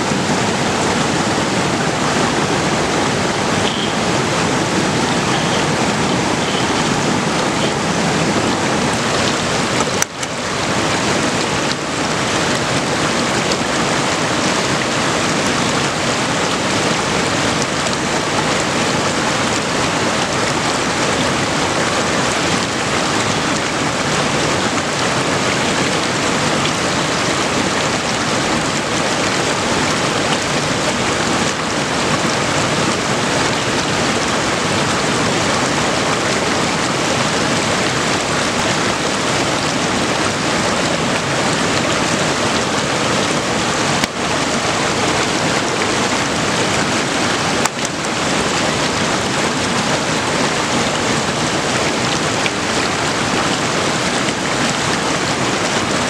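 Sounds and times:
stream water rushing: 0:00.0 - 0:56.0.

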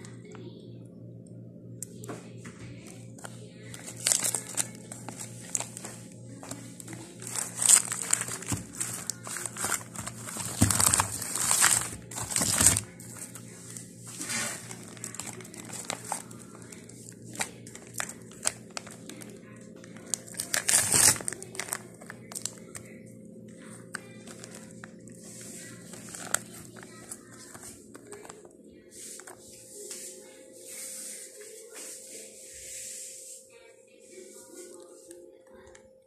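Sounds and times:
faint steady hum: 0:00.0 - 0:36.0
plastic packaging crinkling: 0:02.8 - 0:23.0, 0:23.6 - 0:29.5.

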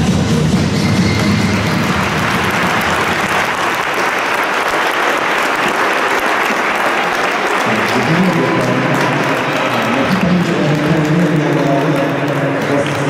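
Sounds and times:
music: 0:00.0 - 0:03.7
audience applauding: 0:00.8 - 0:13.0.

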